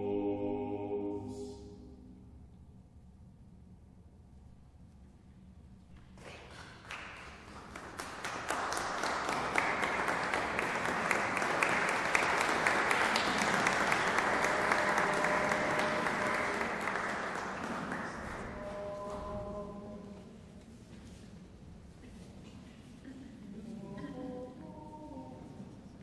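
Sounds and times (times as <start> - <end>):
audience applauding: 6.2 - 18.7.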